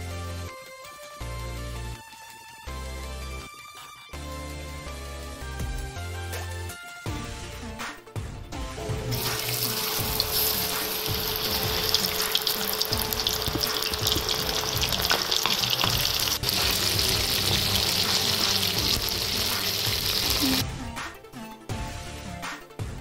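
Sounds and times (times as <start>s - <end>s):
squid deep-frying in oil: 9.1s - 20.6s.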